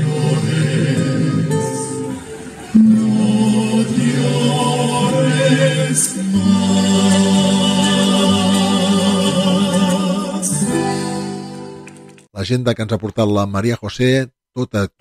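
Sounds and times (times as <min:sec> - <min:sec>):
vocal group singing: 0:00.0 - 0:11.8.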